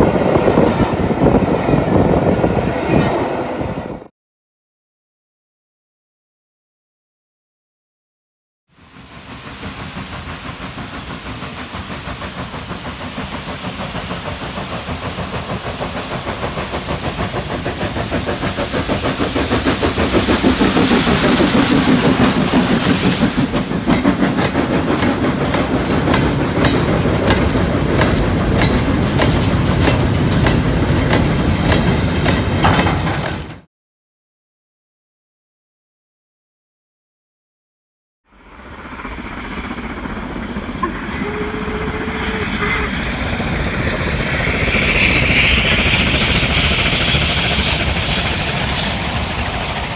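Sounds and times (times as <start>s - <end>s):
steam locomotive chuffing: 8.8s - 33.5s, 38.6s - 49.9s
wagons clicking over rail joints: 23.4s - 33.6s.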